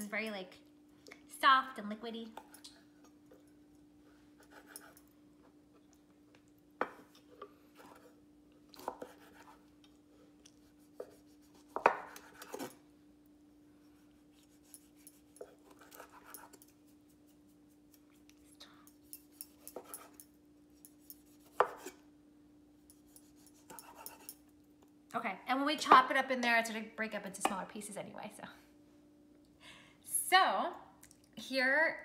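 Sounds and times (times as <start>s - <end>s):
faint steady hum: 0.0s - 32.0s
knife slicing tomato: 8.8s - 9.9s, 10.6s - 12.8s, 20.8s - 22.0s, 22.9s - 24.4s.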